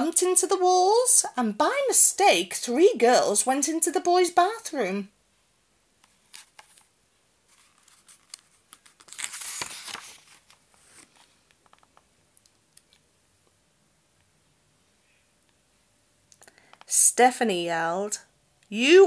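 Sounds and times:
paper rustling: 0:06.0 - 0:06.9, 0:07.5 - 0:12.0.

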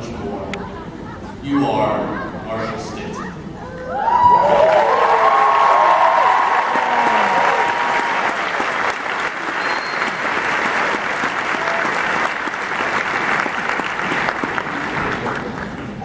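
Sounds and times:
large crowd applauding: 0:04.0 - 0:16.0.

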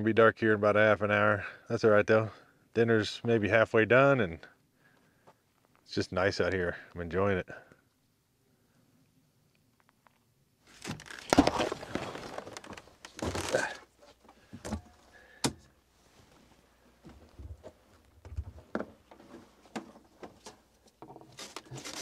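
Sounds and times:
rustling scraping noises: 0:10.6 - 0:15.1, 0:15.9 - 0:22.0.

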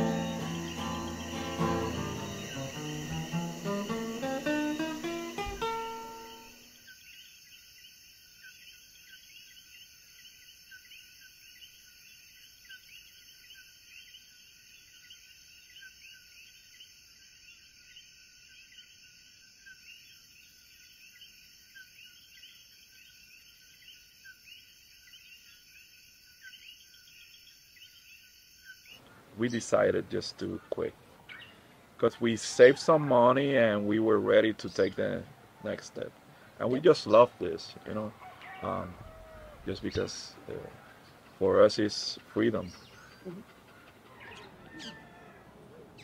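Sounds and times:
acoustic guitar music: 0:00.0 - 0:06.7
chirping night chorus: 0:00.0 - 0:46.0.

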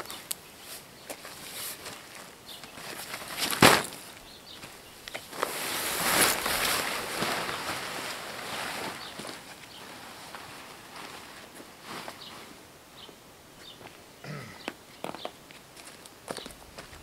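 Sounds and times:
tent fabric rustling and flapping: 0:00.0 - 0:12.7.

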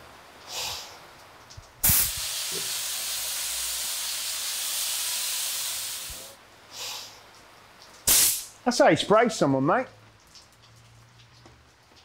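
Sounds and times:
paint spray gun hissing: 0:01.8 - 0:06.4, 0:08.1 - 0:08.5.

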